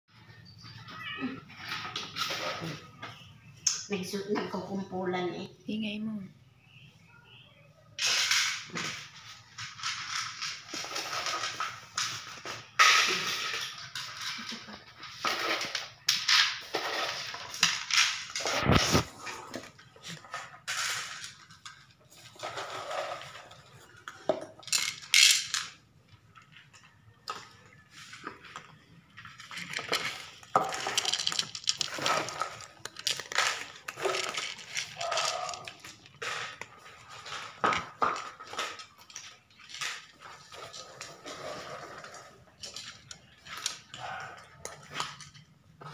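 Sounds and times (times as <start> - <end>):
bowls clattering on tiles: 0.1 - 5.0, 8.0 - 45.9
cats crunching dry food: 9.4 - 24.2, 26.2 - 45.9.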